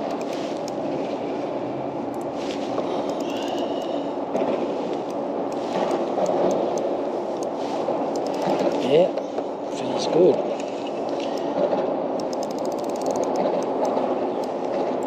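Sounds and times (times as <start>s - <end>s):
fishing reel gears whirring: 12.3s - 13.4s.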